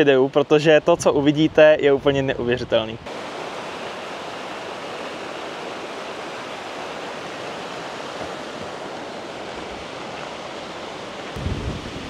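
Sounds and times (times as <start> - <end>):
rushing water: 3.0 - 12.0.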